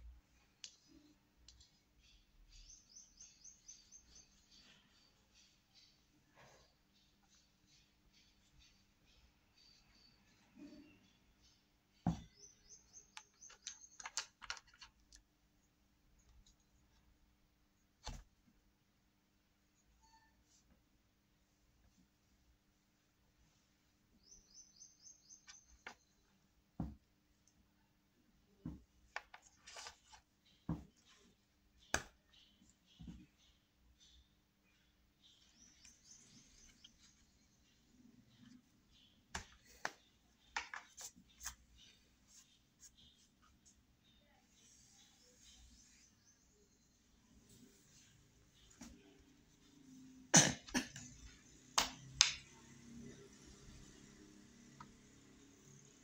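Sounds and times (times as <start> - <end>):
plastic paint pots clicking: 13.1 - 15.3, 39.3 - 41.2
faint high chirp: 19.8 - 20.8
short high squeaks: 20.0 - 20.6.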